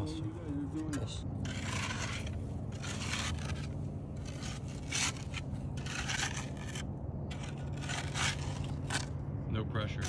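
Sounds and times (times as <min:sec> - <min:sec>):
steady low hum: 0:00.0 - 0:10.0
hand tool scraping sand: 0:01.4 - 0:09.1.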